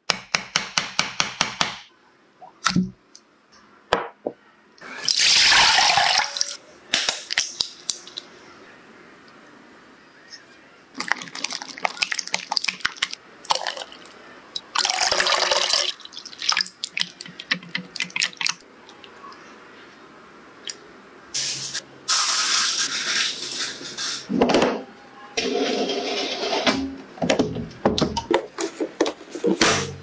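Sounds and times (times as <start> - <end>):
liquid pouring: 11.0 - 19.1.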